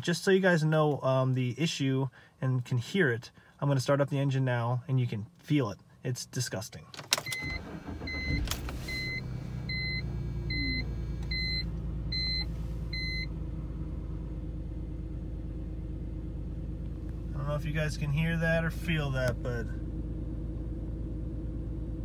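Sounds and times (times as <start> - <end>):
car engine starting and idling roughly: 7.0 - 22.0
dashboard warning chime beeps: 7.2 - 13.3.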